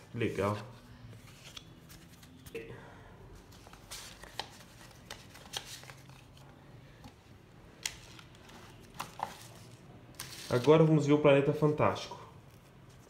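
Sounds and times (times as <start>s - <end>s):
card and plastic rustling: 3.5s - 7.2s, 7.8s - 11.0s.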